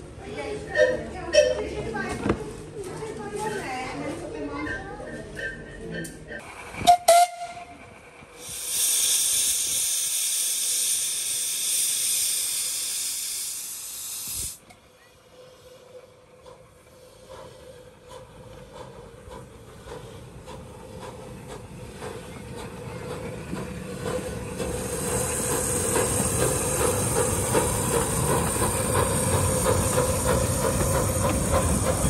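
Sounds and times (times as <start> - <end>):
steam hissing: 8.2 - 14.6, 16.8 - 32.0.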